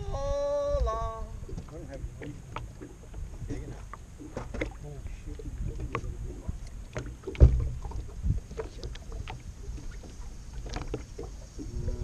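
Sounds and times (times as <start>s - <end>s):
water and wind rumble: 0.0s - 12.0s
knocks and bumps on boat: 1.5s - 12.0s
heavy thump: 7.3s - 8.0s.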